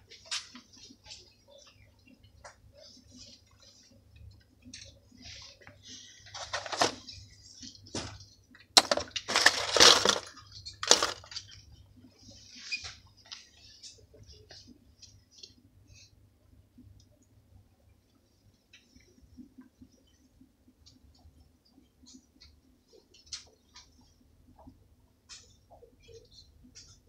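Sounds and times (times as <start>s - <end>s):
plastic floats clattering: 6.2s - 7.1s, 8.8s - 11.5s.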